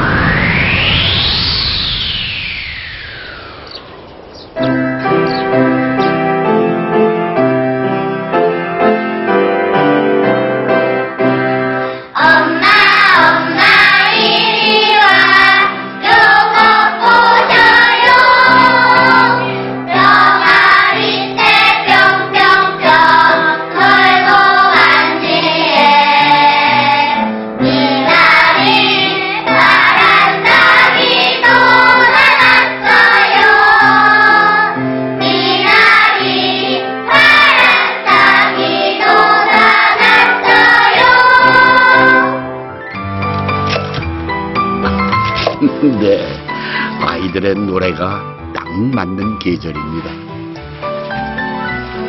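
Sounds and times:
children's choir singing: 0:12.1 - 0:42.6.

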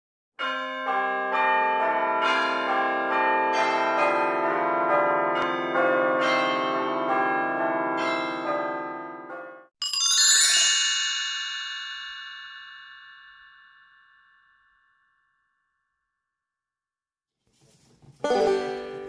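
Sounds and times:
bell-like chiming melody: 0:00.4 - 0:15.2.

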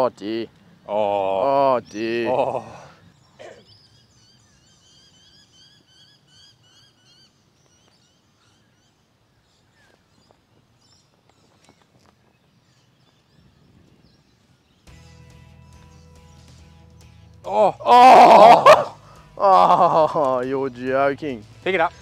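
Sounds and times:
bird chirping: 0:00.8 - 0:17.7.

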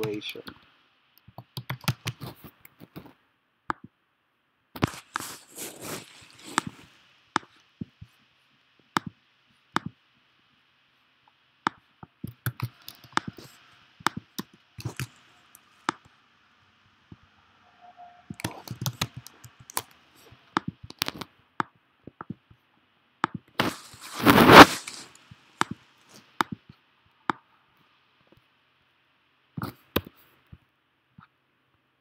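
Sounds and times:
keyboard and mouse clicks: 0:00.0 - 0:03.9, 0:08.9 - 0:09.2, 0:09.8 - 0:10.0, 0:11.7 - 0:16.1, 0:18.3 - 0:22.6, 0:23.2 - 0:23.6, 0:24.5 - 0:27.4, 0:29.6 - 0:30.2.

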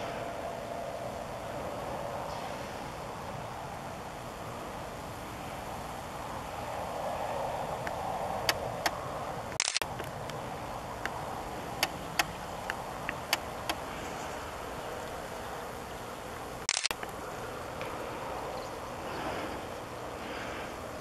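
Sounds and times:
steady background hiss: 0:00.0 - 0:21.0
camera mechanism clicks: 0:09.6 - 0:10.2, 0:16.7 - 0:17.1.

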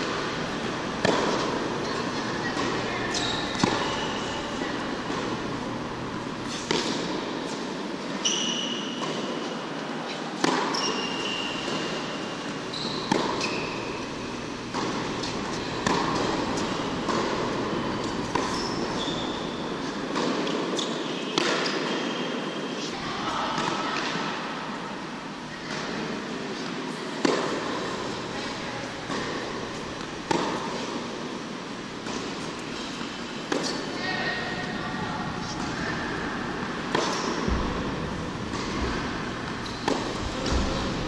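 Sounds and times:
tennis ball racket hits: 0:00.0 - 0:07.6, 0:11.6 - 0:21.9, 0:29.0 - 0:31.2, 0:32.0 - 0:33.9, 0:35.4 - 0:41.0
sneaker squeaks: 0:00.0 - 0:09.5, 0:10.1 - 0:23.0, 0:38.4 - 0:41.0
ventilation fans: 0:00.0 - 0:21.3, 0:22.2 - 0:41.0.

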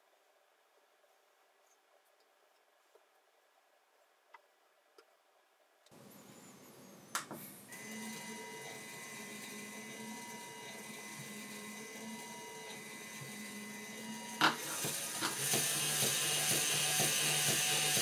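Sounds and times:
toy electric motor whining: 0:07.7 - 0:18.0.

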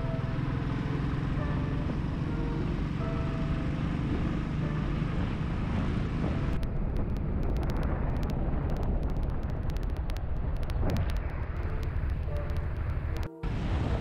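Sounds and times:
motorcycle engine exhaust beat: 0:00.0 - 0:08.0
exhaust crackles: 0:00.0 - 0:14.0
wind rushing over microphone: 0:00.0 - 0:14.0.

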